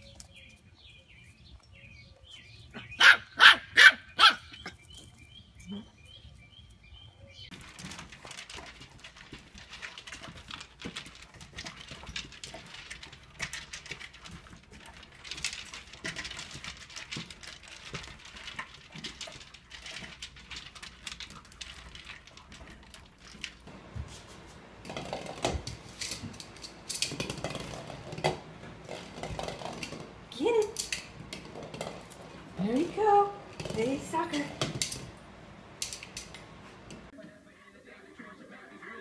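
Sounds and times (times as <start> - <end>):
puppies chewing: 7.4 - 30.3
kibble rattling in plastic bowls: 7.5 - 37.1.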